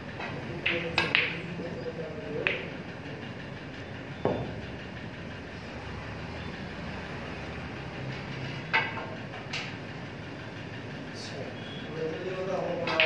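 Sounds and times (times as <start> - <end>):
snooker balls clicking: 0.0 - 1.6, 2.2 - 3.0, 8.6 - 9.8, 12.6 - 13.0
low hum of hall: 0.0 - 13.0.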